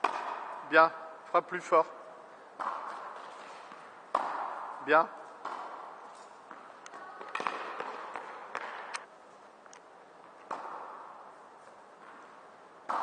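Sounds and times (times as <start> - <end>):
tennis ball racket strikes: 0.0 - 0.6, 2.6 - 4.8, 5.4 - 9.1, 10.4 - 11.2
tennis ball bouncing: 0.0 - 0.7, 2.6 - 9.1, 10.2 - 11.3, 12.0 - 13.0.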